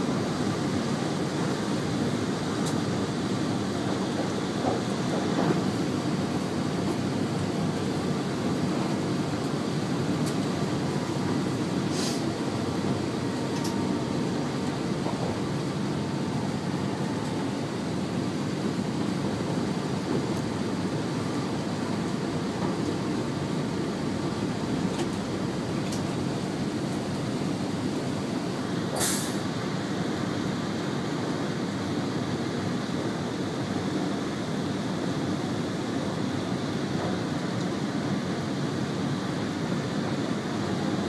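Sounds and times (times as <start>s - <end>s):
train wheels rumbling on rails: 0.0s - 41.0s
brief hiss: 11.9s - 12.3s, 29.0s - 29.5s.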